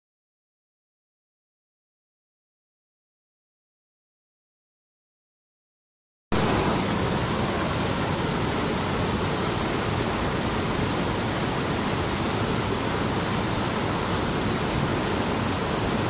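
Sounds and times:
stream rushing over boulders: 0:06.4 - 0:16.0.

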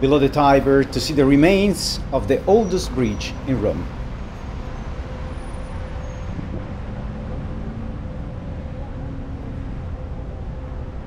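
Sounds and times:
faint engine hum: 0:00.0 - 0:11.0
low rumble of motor traffic: 0:00.0 - 0:11.0
wind on microphone: 0:06.2 - 0:11.0.

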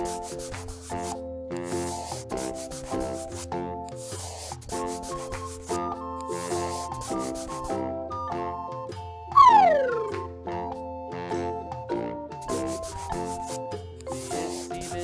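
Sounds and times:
scratchy rubbing noise: 0:00.0 - 0:05.8, 0:06.4 - 0:07.7, 0:12.4 - 0:15.0
instrumental children's tune: 0:00.0 - 0:15.0.

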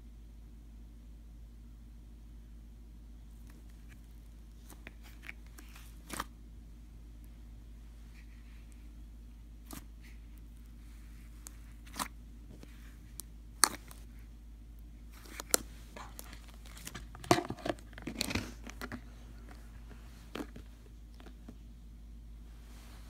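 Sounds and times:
slime crackling and popping: 0:13.1 - 0:14.0, 0:15.2 - 0:18.8.

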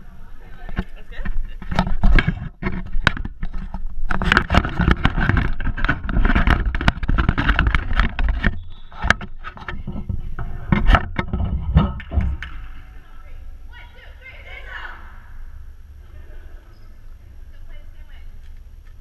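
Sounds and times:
camera handling rubbing and knocks: 0:00.7 - 0:12.6.

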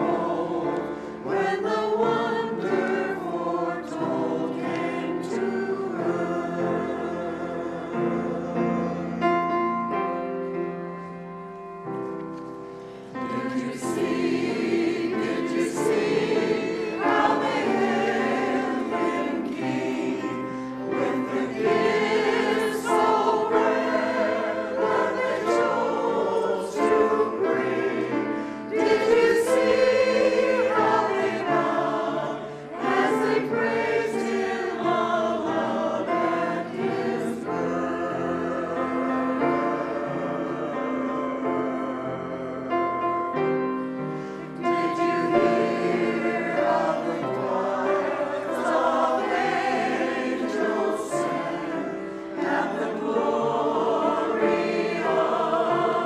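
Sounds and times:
mixed choir singing: 0:00.0 - 0:10.8, 0:12.8 - 0:56.0.

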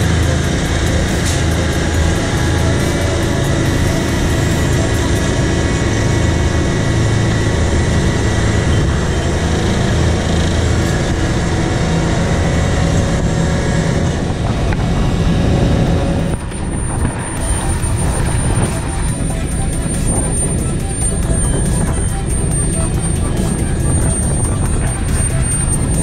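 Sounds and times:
diesel engine running: 0:00.0 - 0:26.0
paving machinery working: 0:00.0 - 0:26.0.

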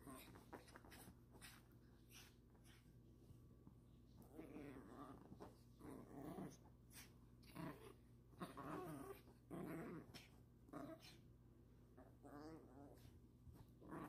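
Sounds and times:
small dog growling playfully: 0:00.0 - 0:01.1, 0:04.2 - 0:11.2, 0:12.0 - 0:14.0.

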